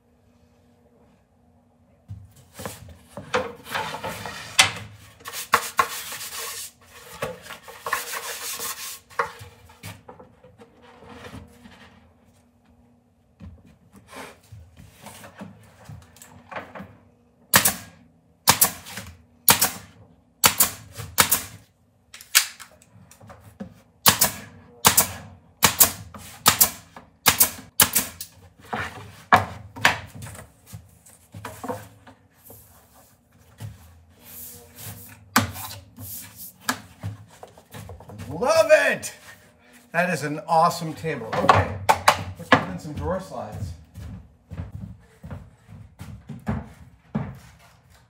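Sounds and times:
nail gun firing: 0:17.5 - 0:21.6, 0:24.0 - 0:28.3.

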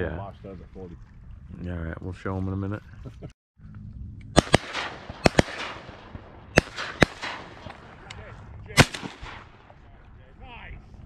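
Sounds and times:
shotgun shots with echo: 0:04.4 - 0:08.0, 0:08.8 - 0:09.8.

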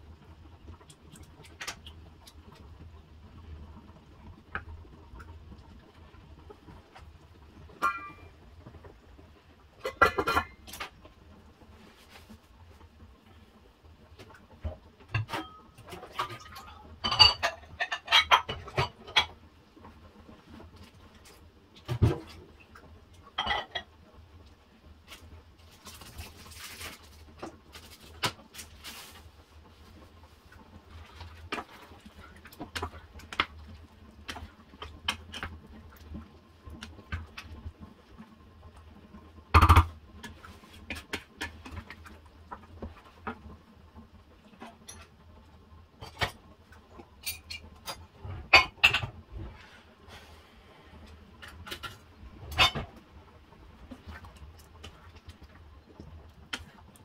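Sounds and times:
spoon knocking and scraping pan: 0:07.8 - 0:08.2, 0:17.0 - 0:19.3, 0:47.2 - 0:49.2
wooden spoon stirring thick sauce: 0:29.7 - 0:36.2.

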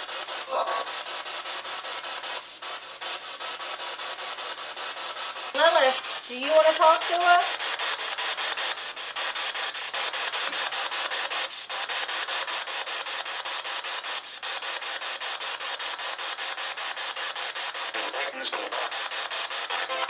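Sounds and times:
pulsing radio static: 0:00.0 - 0:02.4, 0:05.4 - 0:08.2, 0:17.6 - 0:20.0.

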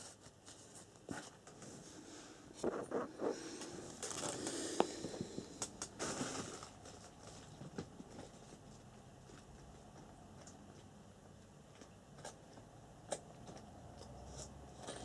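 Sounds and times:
rustling of plastic packaging: 0:02.7 - 0:08.9.

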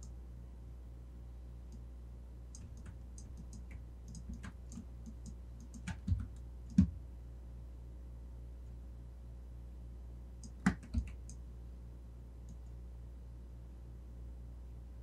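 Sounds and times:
steady low hum: 0:00.0 - 0:15.0
mouse and keyboard clicks: 0:02.5 - 0:06.9, 0:10.4 - 0:11.4.

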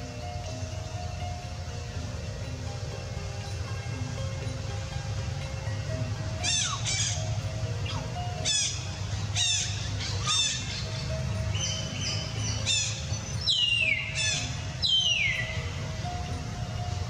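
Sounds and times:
baby monkey squealing: 0:06.4 - 0:11.8.

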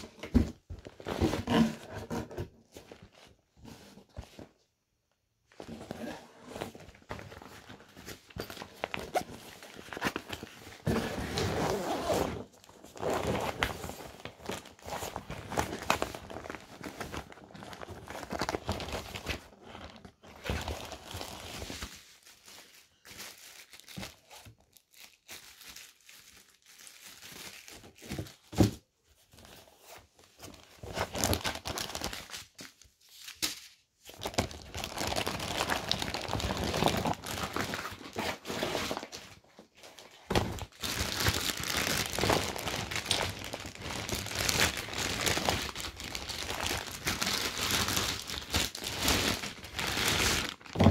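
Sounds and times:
plastic wrapping crinkling: 0:11.7 - 0:28.4, 0:34.2 - 0:38.4, 0:39.9 - 0:50.9.

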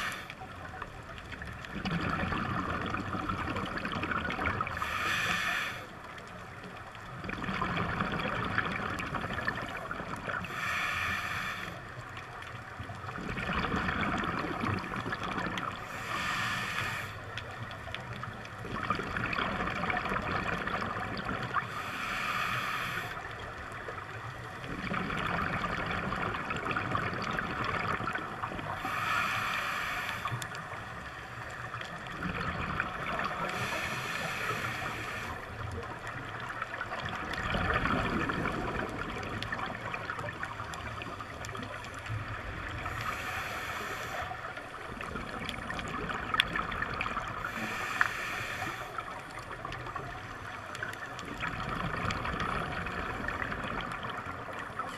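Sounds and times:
bubbling of exhaled air: 0:01.6 - 0:05.8, 0:07.1 - 0:11.4, 0:13.0 - 0:23.6, 0:24.6 - 0:30.4, 0:31.7 - 0:54.9
regulator hiss on inhalation: 0:04.8 - 0:06.0, 0:10.4 - 0:11.9, 0:15.8 - 0:17.3, 0:21.7 - 0:23.3, 0:28.8 - 0:30.5, 0:33.4 - 0:35.6, 0:42.8 - 0:44.5, 0:47.4 - 0:49.2.

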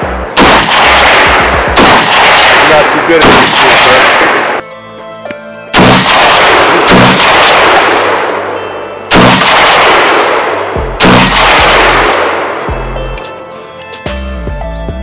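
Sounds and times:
pistol shots with echo: 0:00.0 - 0:04.6, 0:05.7 - 0:12.7.

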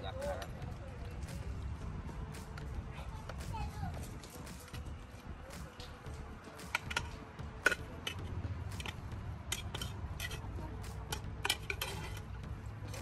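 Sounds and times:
metal spoon scraping pot: 0:06.6 - 0:13.0.

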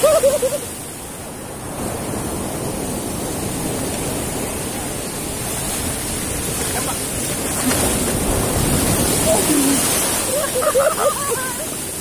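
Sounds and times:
sea surf rushing: 0:00.0 - 0:12.0.

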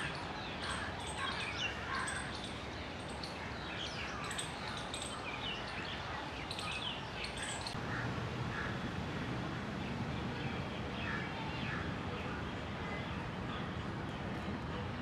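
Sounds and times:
small birds chirping: 0:00.0 - 0:07.8
steady outdoor hiss: 0:00.0 - 0:15.0.

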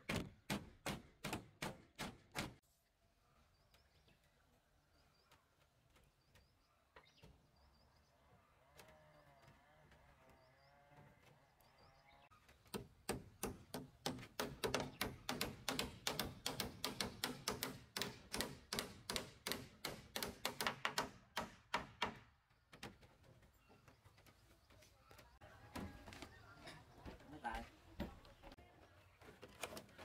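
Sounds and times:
hammers driving nails into wood: 0:00.0 - 0:02.6, 0:12.6 - 0:22.8.

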